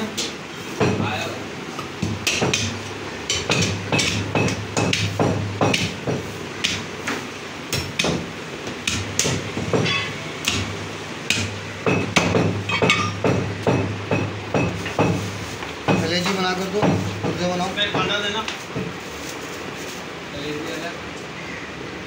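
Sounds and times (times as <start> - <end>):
cleaver chopping meat and bone: 2.0 - 19.0.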